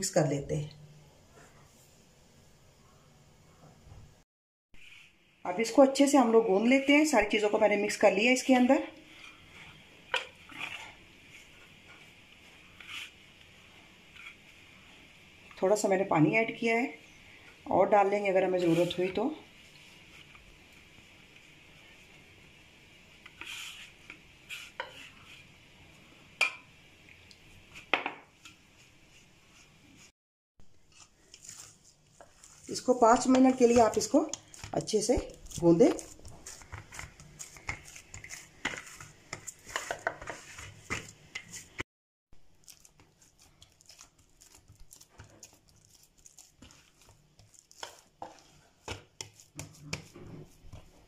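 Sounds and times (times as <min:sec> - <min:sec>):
hands rubbing dough: 0:08.4 - 0:14.7, 0:18.0 - 0:22.2, 0:23.1 - 0:25.5, 0:30.8 - 0:41.8, 0:42.5 - 0:51.0.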